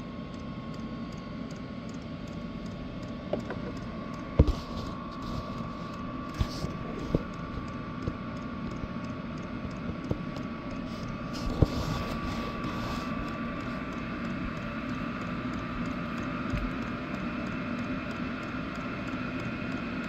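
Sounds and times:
heater fan hum and whine: 0.0 - 20.0.

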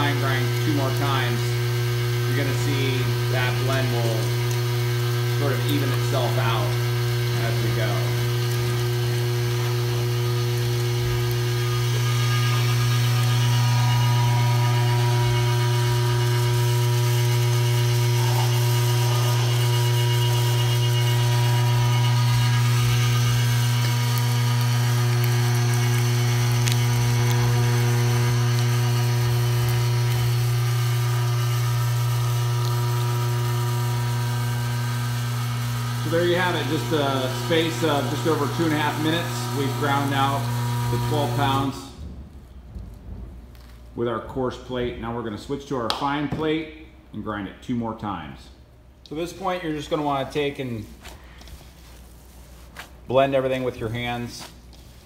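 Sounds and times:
electric meat grinder running: 0.0 - 41.8.

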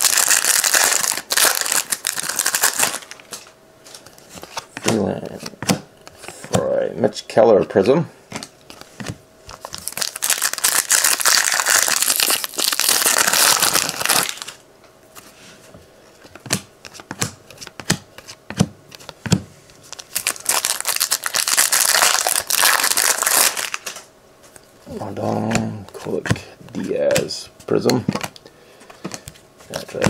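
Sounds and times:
foil wrapper crinkling and tearing: 0.0 - 3.4, 9.6 - 14.6, 19.8 - 24.1.

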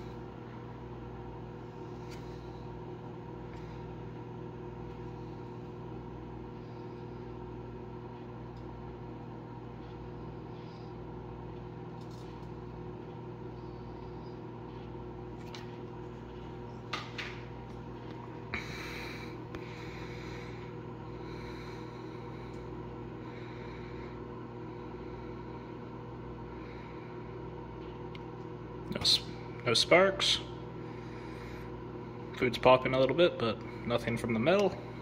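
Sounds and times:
microwave oven humming: 0.0 - 35.0.

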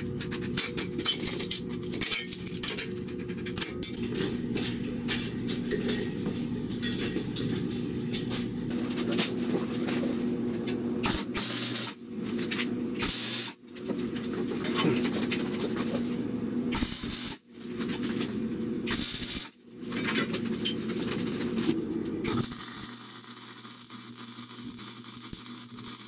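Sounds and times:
steady low hum: 0.0 - 26.0
tools clattering: 0.2 - 7.6, 19.9 - 21.6.

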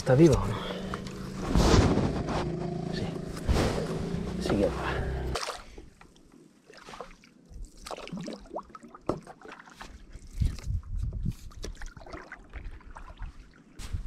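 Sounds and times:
low bumps: 0.0 - 5.4
paddle splashing in water: 5.3 - 6.0, 6.7 - 10.5.

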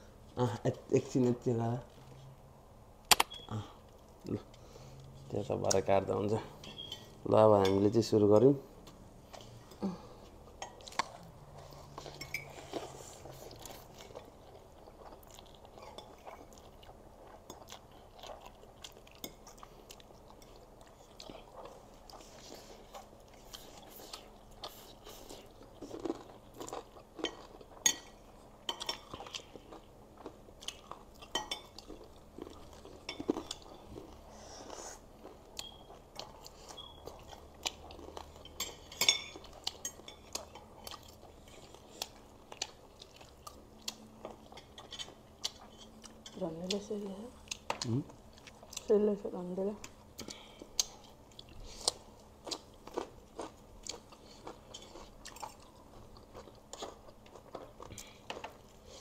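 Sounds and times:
slurping and chewing: 9.3 - 46.3, 50.2 - 59.0.

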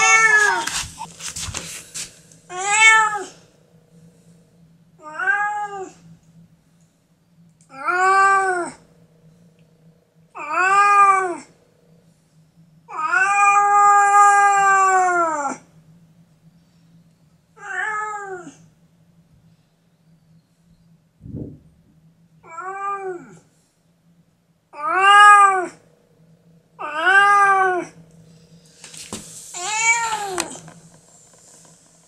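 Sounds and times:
cat meowing: 0.0 - 0.7, 2.5 - 3.4, 29.6 - 30.6.

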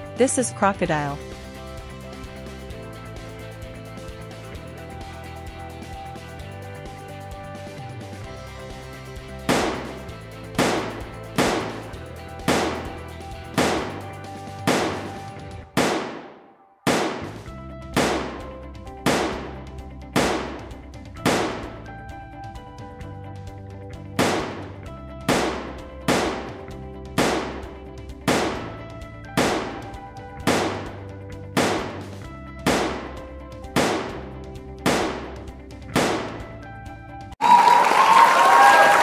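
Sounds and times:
steady bass: 0.0 - 15.6, 17.2 - 37.4
background music: 0.0 - 39.0
sharp percussive hits: 9.5 - 14.0, 14.6 - 16.3, 16.9 - 17.4, 18.0 - 18.4, 19.0 - 19.6, 20.2 - 21.8, 24.2 - 24.7, 25.3 - 26.6, 27.2 - 27.7, 28.3 - 28.7, 29.4 - 31.0, 31.6 - 33.2, 33.8 - 34.2, 34.8 - 35.4.

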